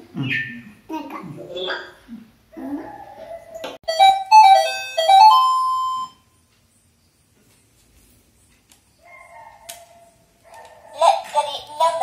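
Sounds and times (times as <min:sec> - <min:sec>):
toy electronic beeping jingle: 0:03.9 - 0:06.2.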